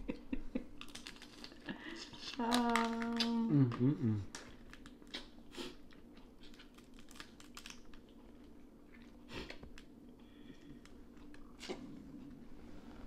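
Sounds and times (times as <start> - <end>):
low steady hum: 0.0 - 13.0
crab shells cracking: 0.8 - 1.6, 6.4 - 8.2.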